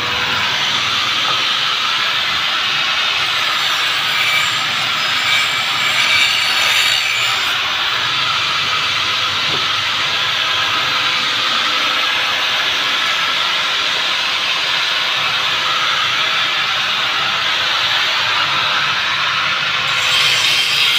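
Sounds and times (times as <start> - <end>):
angle grinder grinding steel: 0.0 - 8.9, 19.8 - 20.9.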